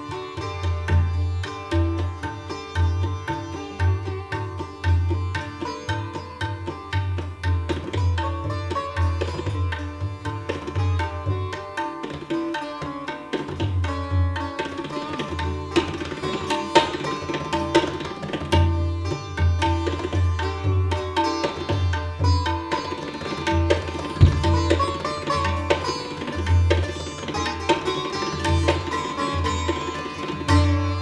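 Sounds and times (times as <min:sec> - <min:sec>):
plucked sitar phrases: 0:00.0 - 0:31.0
tabla strokes: 0:00.0 - 0:31.0
deep bass drum notes: 0:24.2 - 0:24.8.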